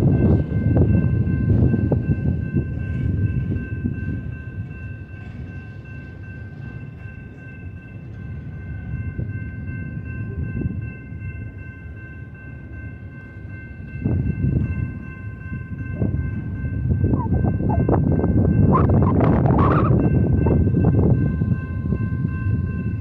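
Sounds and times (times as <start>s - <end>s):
steel wheels rumbling on rail: 0.0s - 23.0s
high squealing tone: 17.2s - 18.0s.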